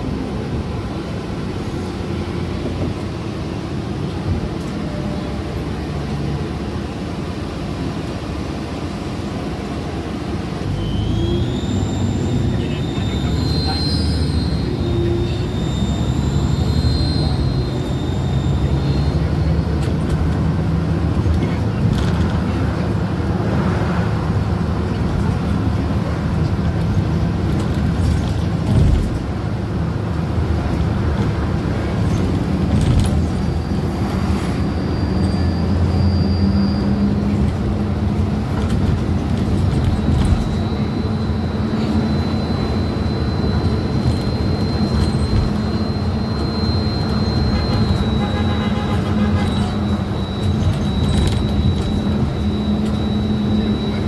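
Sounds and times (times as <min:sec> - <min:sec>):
bus engine rumble: 0:00.0 - 0:54.0
thin high whine: 0:10.7 - 0:19.9, 0:31.9 - 0:54.0.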